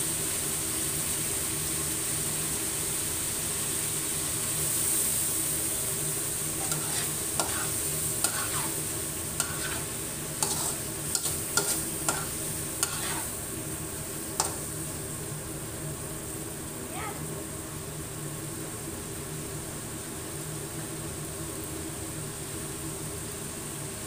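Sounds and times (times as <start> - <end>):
food sizzling in a wok: 0.0 - 24.0
spatula scraping a pan: 6.6 - 13.4, 14.4 - 14.7.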